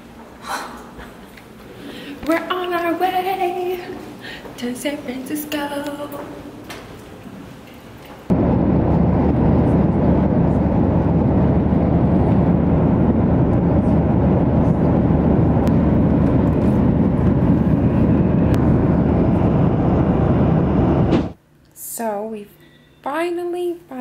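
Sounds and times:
jet cabin engine rush: 8.3 - 21.4.

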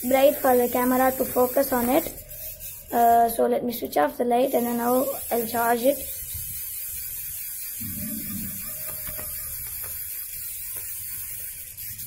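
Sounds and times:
hand-crank torch whirring: 4.5 - 12.0.

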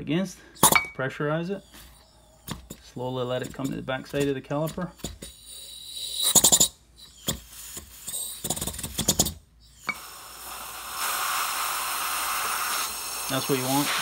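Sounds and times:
compressed air bursts: 5.2 - 9.3, 9.9 - 14.0
steady air hiss: 5.3 - 14.0.

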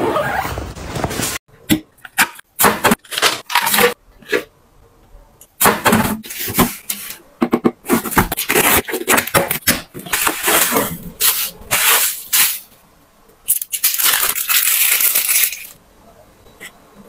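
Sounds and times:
plastic wrap crinkling: 13.5 - 15.8.

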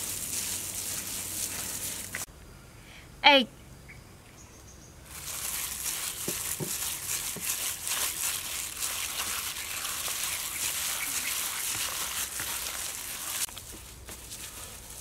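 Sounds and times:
wet squishing of meat: 5.1 - 13.7
plastic bag crinkling: 5.1 - 15.0.

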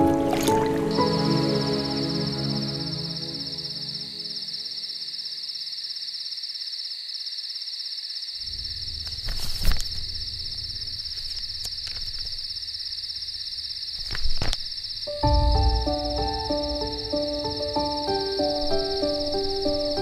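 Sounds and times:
crickets chirring: 0.0 - 20.0
low rumble: 15.2 - 17.7.

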